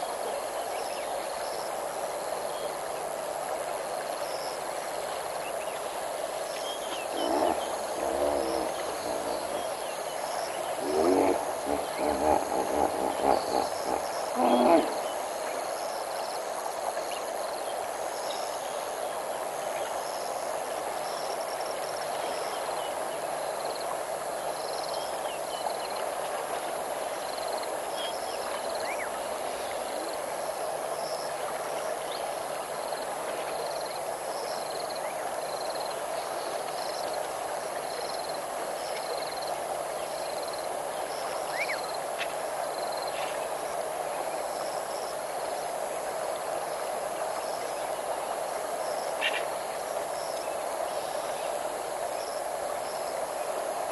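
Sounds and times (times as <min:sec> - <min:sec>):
steady rushing wash: 0:06.2 - 0:15.6
insects chirping in pulses: 0:06.4 - 0:16.1.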